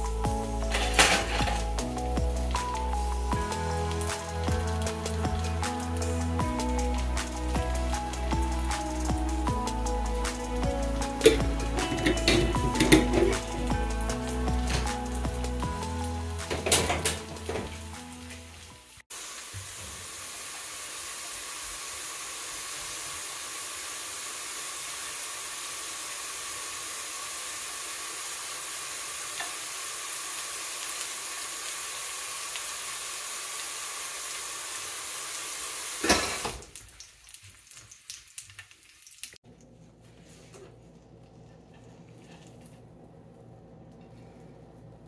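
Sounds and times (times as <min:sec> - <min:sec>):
cheese sizzling in a pan: 0:00.0 - 0:39.4.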